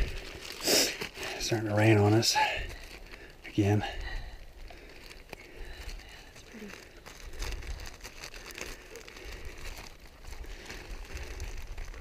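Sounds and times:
crinkly wrapping rustling: 0:00.0 - 0:12.0.

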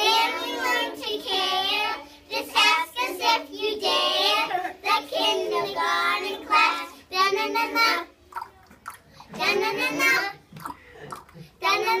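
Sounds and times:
children singing: 0:00.0 - 0:08.2, 0:09.3 - 0:10.6.

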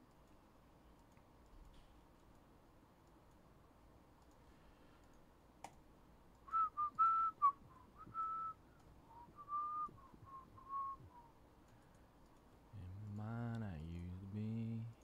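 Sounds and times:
click: 0:00.0 - 0:03.5, 0:04.2 - 0:06.5, 0:11.6 - 0:13.6
person whistling a tune: 0:06.5 - 0:11.3.

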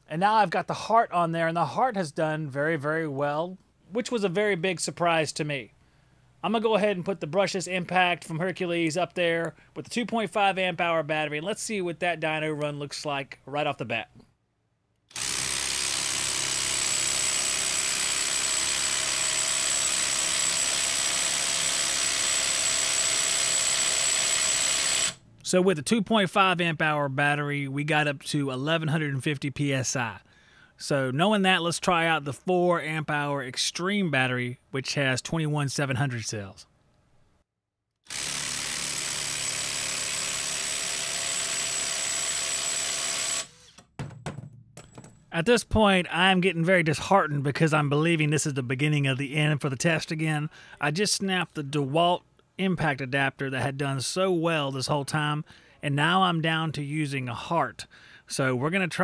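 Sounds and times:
impact driver hammering: 0:15.1 - 0:25.2, 0:38.1 - 0:45.3.

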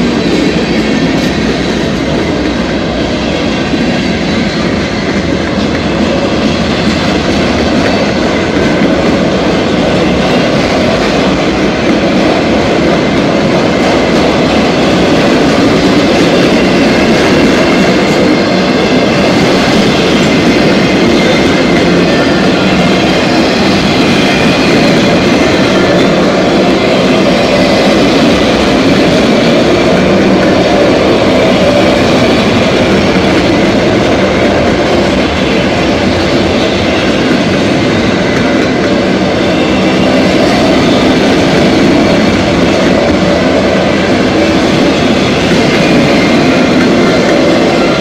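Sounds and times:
train wheels rolling on rails: 0:00.0 - 0:48.0.

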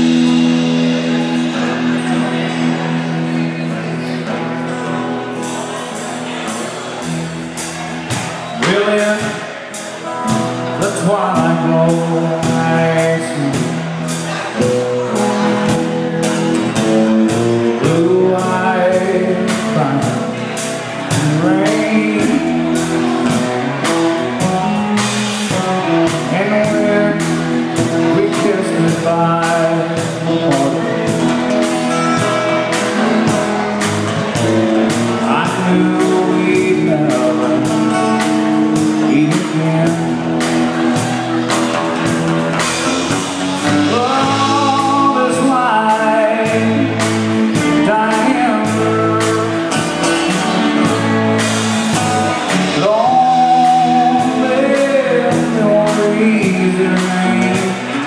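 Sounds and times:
drum kit beat: 0:00.0 - 0:58.0
live rock band playing: 0:00.0 - 0:58.0
man singing: 0:08.3 - 0:58.0.

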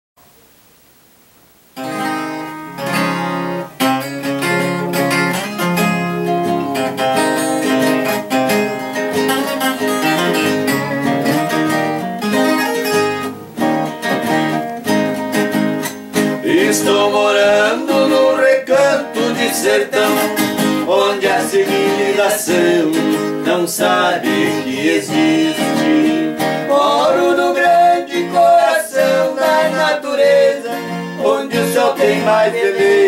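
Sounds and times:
faint hiss: 0:00.2 - 0:33.0
viola plucked: 0:01.8 - 0:16.6
acoustic guitar plucking: 0:01.8 - 0:33.0.

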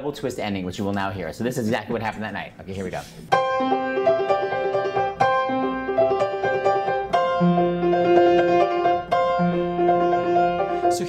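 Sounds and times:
grand piano playing chords: 0:03.3 - 0:11.0.

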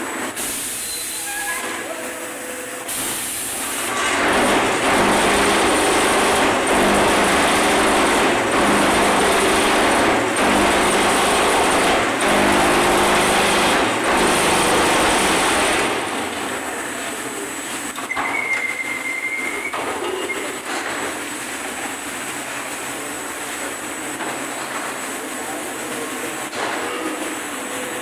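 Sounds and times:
quieter machine noise: 0:00.0 - 0:28.0
block making machine vibrating: 0:03.9 - 0:16.1.

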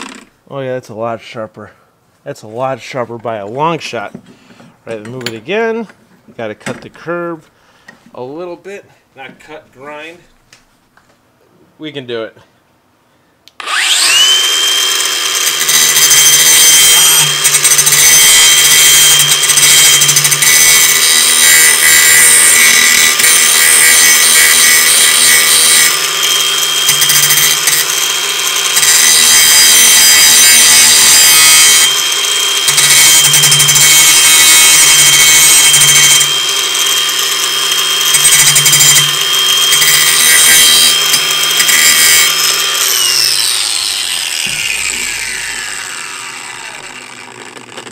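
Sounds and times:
angle grinder grinding metal: 0:00.0 - 0:00.3, 0:13.6 - 0:47.9.

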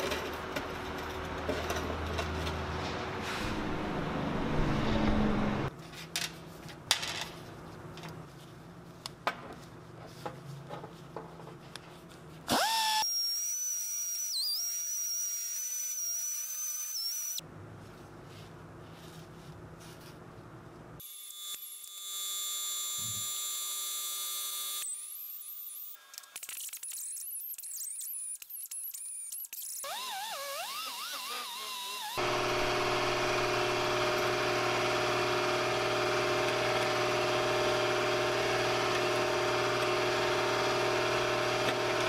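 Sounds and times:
rotary tool whine: 0:12.5 - 0:17.4, 0:27.0 - 0:42.0
second power tool whine: 0:29.8 - 0:42.0.

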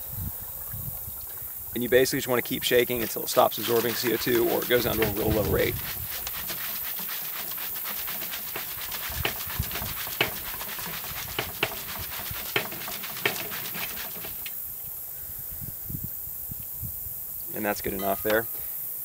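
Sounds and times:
water sloshing in plastic bottle: 0:02.5 - 0:14.5.

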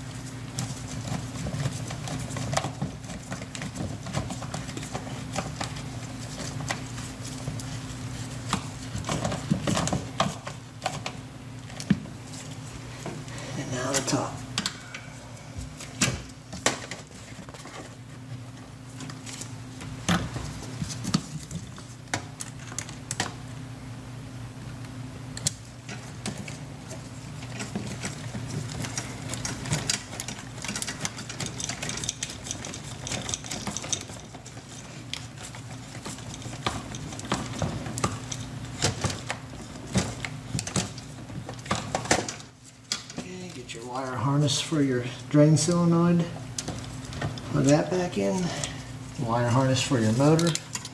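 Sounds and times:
steady low hum: 0:00.0 - 0:50.9
plastic and metal parts rattling: 0:25.9 - 0:43.3, 0:49.5 - 0:50.9.

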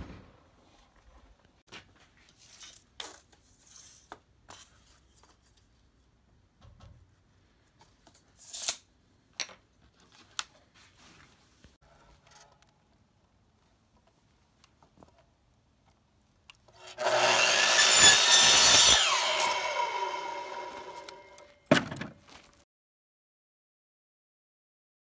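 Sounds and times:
tape measure scraping wood: 0:16.8 - 0:21.5.

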